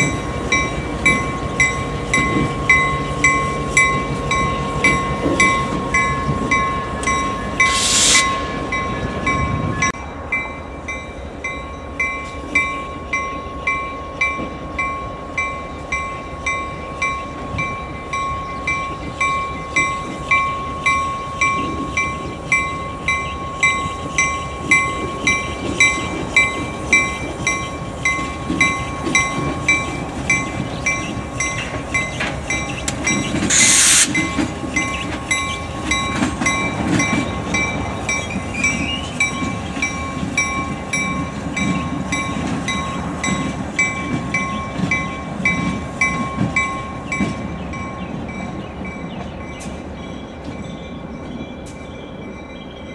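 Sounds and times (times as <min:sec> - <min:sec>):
locomotive bell ringing: 0:00.0 - 0:52.9
rumble of moving locomotives: 0:00.0 - 0:52.9
loud hiss of air: 0:07.6 - 0:08.6, 0:33.5 - 0:34.3.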